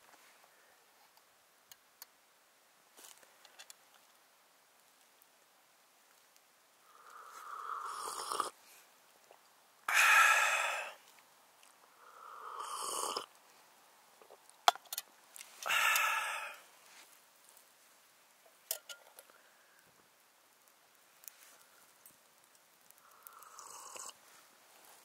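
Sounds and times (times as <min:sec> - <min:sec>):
person slurping coffee: 0:07.2 - 0:08.6, 0:12.4 - 0:13.3, 0:23.3 - 0:24.2
breathy sigh: 0:09.9 - 0:11.0, 0:15.6 - 0:16.7.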